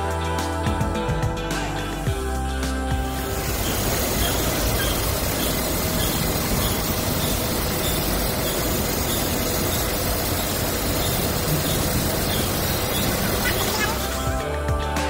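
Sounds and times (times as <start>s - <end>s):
fabric printing machine running: 3.0s - 14.4s
faint regular ticking: 3.1s - 14.3s.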